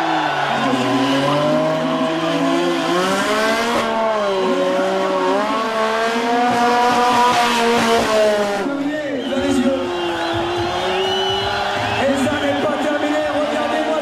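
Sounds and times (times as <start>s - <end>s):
motorcycle engine at high revs: 0.8s - 8.8s.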